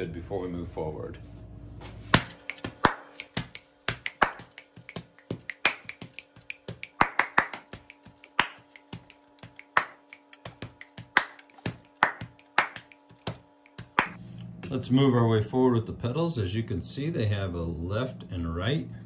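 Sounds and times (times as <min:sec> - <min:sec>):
hand ratchet clicking: 0:07.8 - 0:14.1.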